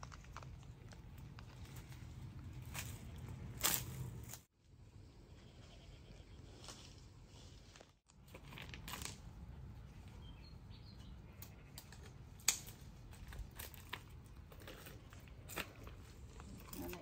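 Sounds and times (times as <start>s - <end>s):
leaves and twigs rustling: 0.0s - 4.5s, 5.7s - 10.3s.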